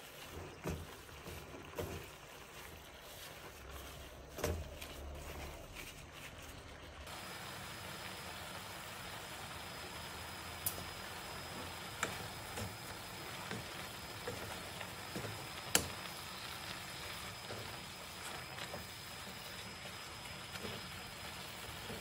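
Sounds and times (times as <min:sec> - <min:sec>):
steady hiss: 0:07.0 - 0:22.0.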